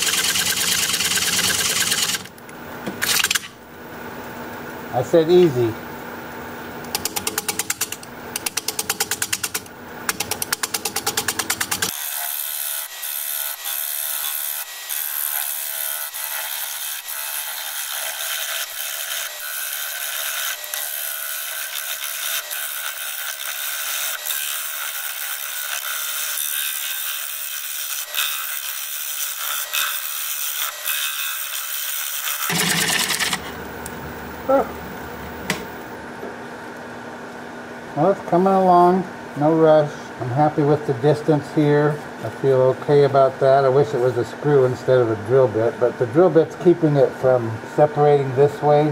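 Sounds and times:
lathe tool hissing cut: 0.0 - 2.3
wood lathe tool ticking: 0.0 - 2.3.

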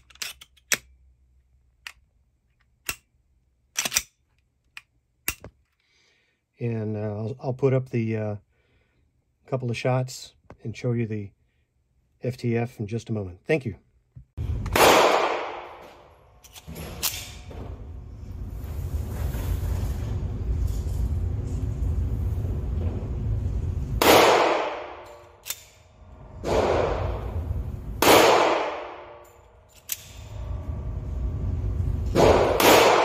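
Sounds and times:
pistol shots echoing indoors: 14.5 - 16.2, 24.0 - 30.3, 32.1 - 33.0
low rumble: 17.2 - 24.0, 25.8 - 28.0, 29.9 - 32.6.

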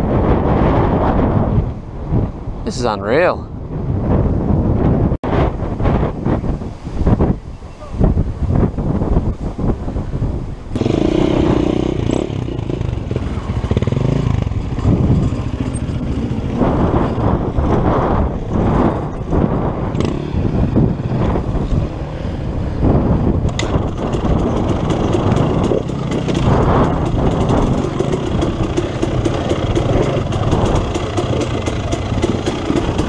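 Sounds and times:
dirt bike engine running: 10.8 - 33.0.

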